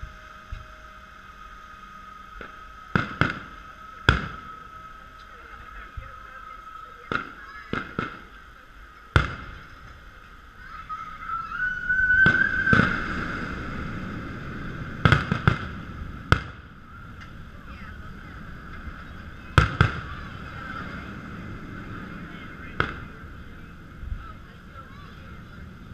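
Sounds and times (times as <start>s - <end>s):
high rising whistle: 0.0s - 7.0s, 10.7s - 15.1s
fireworks shells bursting: 2.4s - 4.5s.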